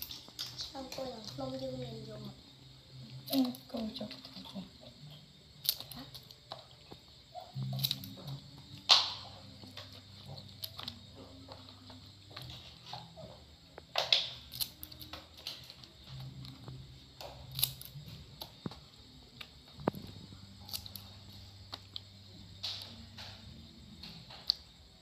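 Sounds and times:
scissors snipping: 17.2 - 18.5.

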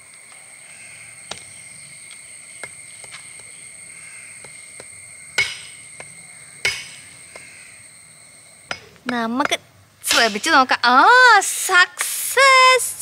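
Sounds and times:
axe chopping bone on wood: 4.4 - 7.5.

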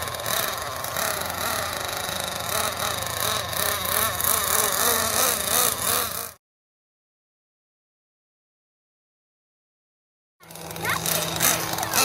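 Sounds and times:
model truck engine revving: 0.0 - 6.4, 10.4 - 12.0.

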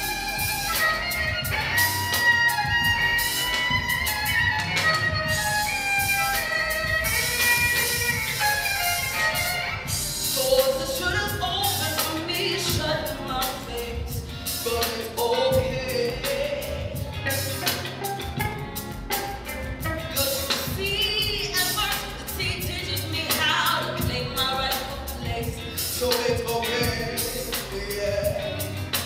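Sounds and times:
solo violin melody: 0.0 - 9.9
backing beat with drums and bass: 0.0 - 29.0.

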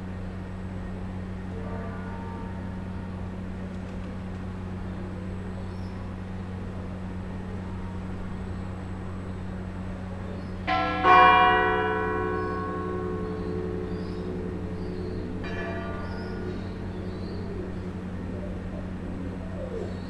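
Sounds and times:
steady low hum: 0.0 - 20.0
church bell ringing: 1.4 - 3.2, 10.6 - 19.4.

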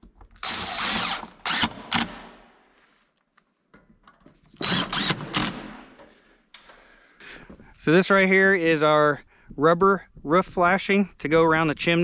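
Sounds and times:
cordless drill driving screws: 0.3 - 2.5, 4.6 - 6.1.

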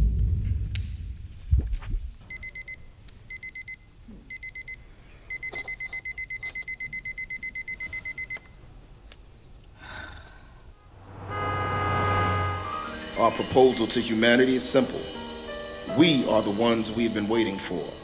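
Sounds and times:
alarm clock beeping: 2.3 - 8.5.

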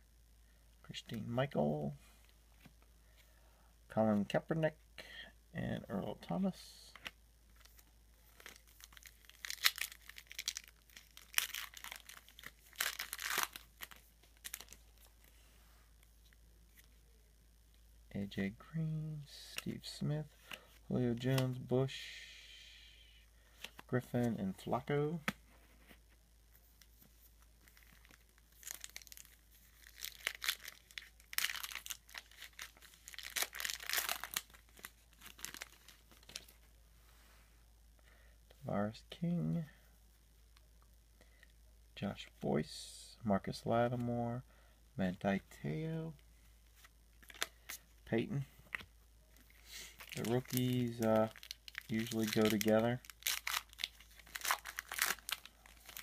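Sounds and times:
foil wrapper crinkling: 7.6 - 15.1, 27.4 - 36.6, 46.8 - 47.9, 49.4 - 56.0
foil wrapper ripping: 7.7 - 15.0, 27.6 - 36.5, 49.9 - 56.0.

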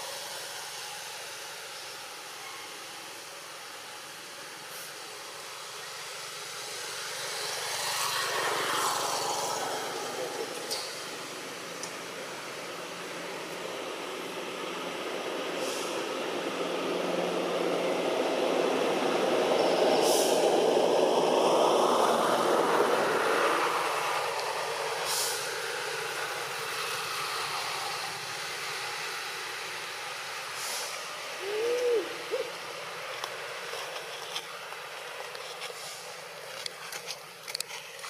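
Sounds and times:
passing vehicle engine: 4.7 - 36.8
short hooting call: 31.4 - 32.5.

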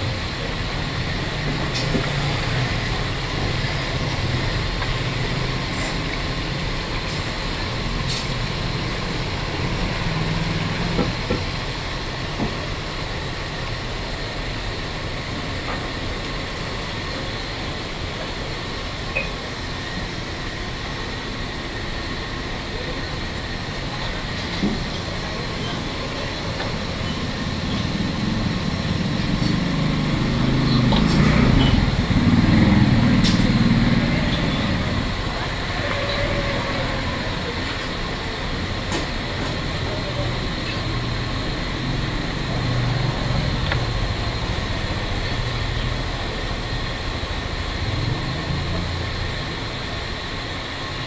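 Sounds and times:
indistinct voices: 22.6 - 46.8.

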